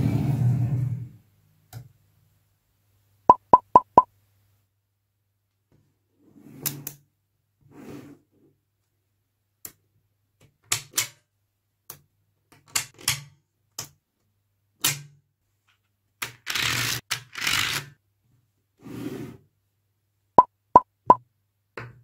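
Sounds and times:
magnetic balls clicking: 3.3s - 4.0s.

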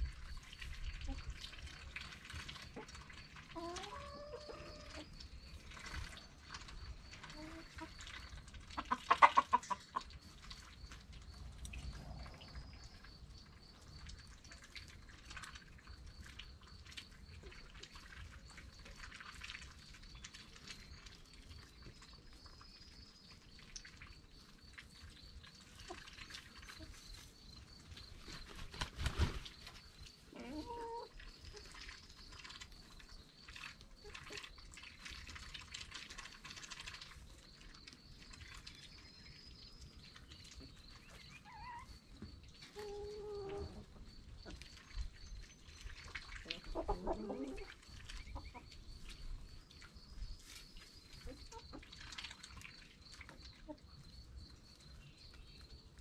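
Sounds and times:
hens clucking softly: 0.0s - 54.9s
loud chicken calls: 8.8s - 10.1s.

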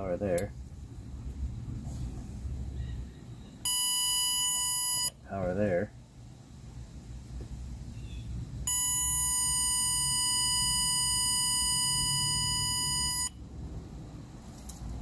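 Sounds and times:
high steady beep tone: 3.6s - 5.2s, 8.7s - 13.4s.

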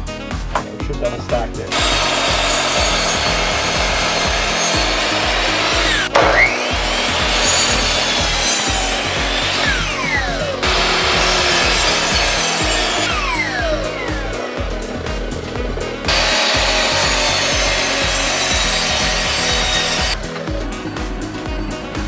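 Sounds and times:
miter saw cutting wood: 1.7s - 20.4s.

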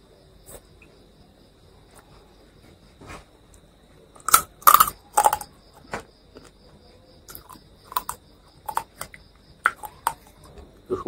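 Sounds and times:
cricket chirping: 0.0s - 11.0s
chewing crunchy food: 4.2s - 6.6s, 7.3s - 10.5s.

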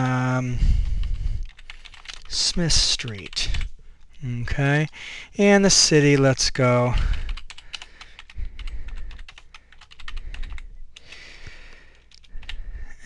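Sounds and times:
typing on computer keyboard: 0.8s - 3.7s, 6.9s - 11.2s, 11.9s - 12.6s.

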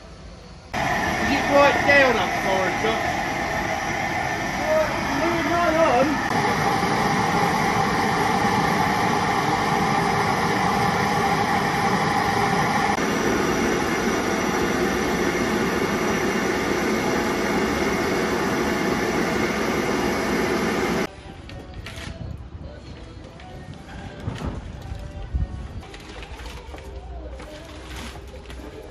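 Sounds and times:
steady tone: 0.7s - 21.1s
rushing hiss of steam: 0.8s - 21.1s.

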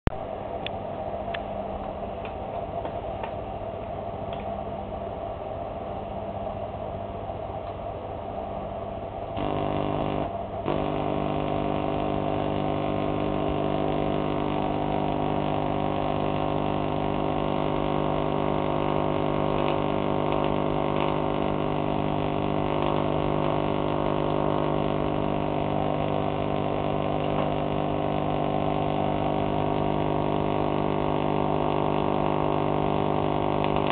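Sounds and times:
faint steady hum: 0.1s - 33.9s
tesla coil buzzing hum: 9.2s - 33.9s
clicks: 9.4s - 28.7s, 33.6s - 33.9s.

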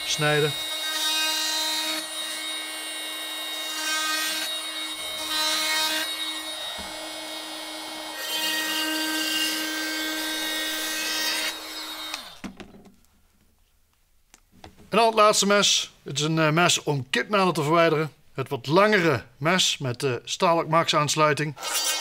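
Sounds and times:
oscillating multitool cutting: 0.0s - 12.4s, 21.6s - 22.0s
power tool winding down: 0.0s - 12.4s, 21.6s - 22.0s.

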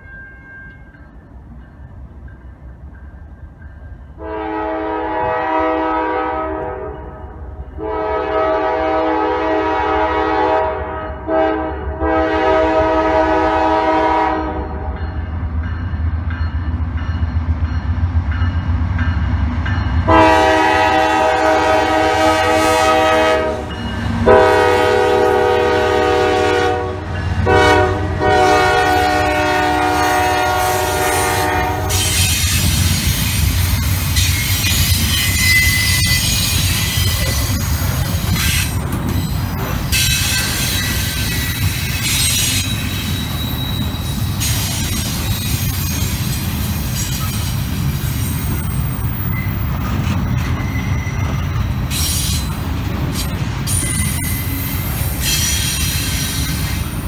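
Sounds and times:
train rumbling: 0.0s - 57.0s
locomotive air horn blasts: 4.2s - 7.2s, 7.8s - 15.0s, 20.1s - 32.6s
rail clatter: 15.7s - 57.0s
faint wheel squeal: 40.0s - 46.2s, 48.2s - 52.6s.

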